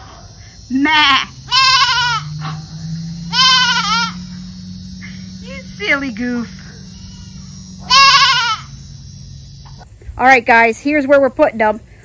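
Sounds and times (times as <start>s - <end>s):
goat bleating: 0.8s - 2.4s, 3.3s - 9.1s.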